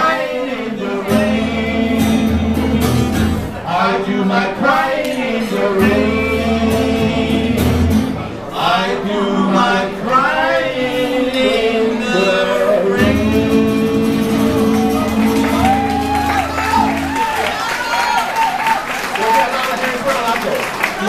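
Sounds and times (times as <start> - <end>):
two men singing: 0.0 - 16.2
strummed acoustic guitar: 1.0 - 3.9, 4.6 - 8.5, 10.9 - 17.2.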